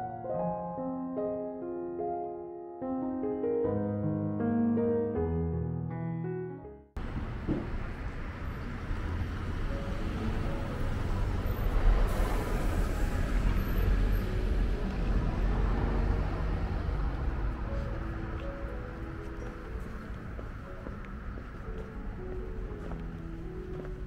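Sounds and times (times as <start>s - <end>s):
vehicles driving past: 7.0s - 24.0s.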